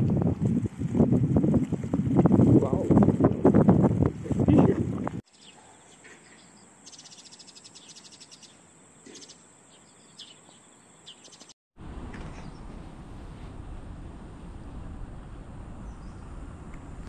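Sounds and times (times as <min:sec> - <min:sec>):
high bird chirps: 0:05.3 - 0:11.6
steady low noise: 0:11.8 - 0:17.0.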